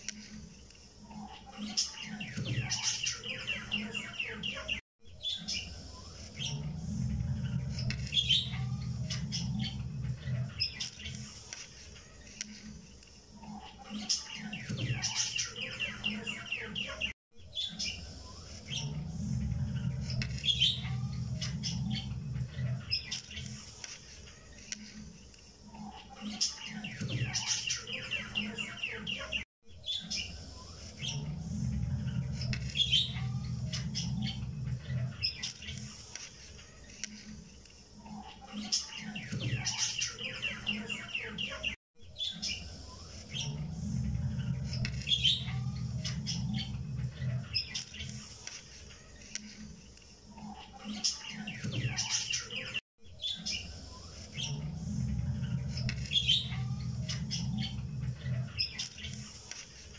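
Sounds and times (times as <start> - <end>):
birds chirping and trilling: 0.0 - 59.9
low hum: 5.6 - 10.6, 17.9 - 22.9, 30.2 - 35.2, 42.6 - 47.6, 53.7 - 58.6.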